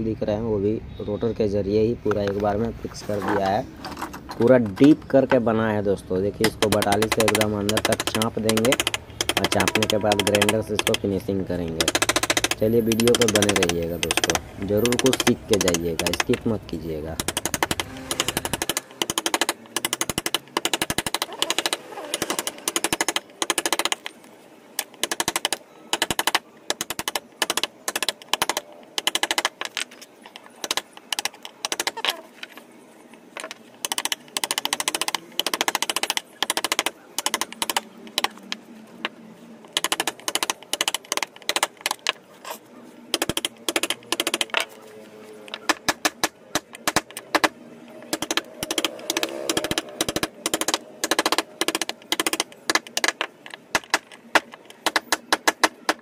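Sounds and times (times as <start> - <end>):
hammer tapping chisel into wood: 6.4 - 11.0.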